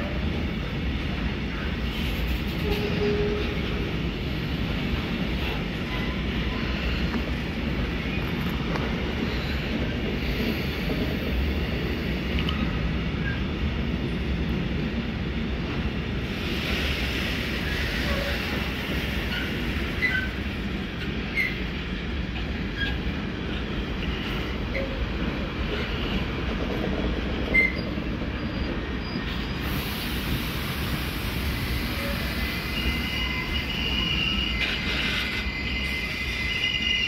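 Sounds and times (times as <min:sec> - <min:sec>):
train wheels rumbling on rail: 0:00.0 - 0:37.0
wheel squeals: 0:27.5 - 0:29.6.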